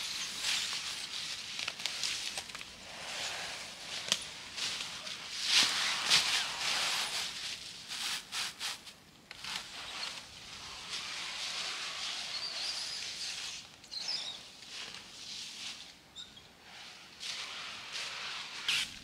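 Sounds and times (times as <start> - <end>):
hands rustling material: 0.0 - 13.7.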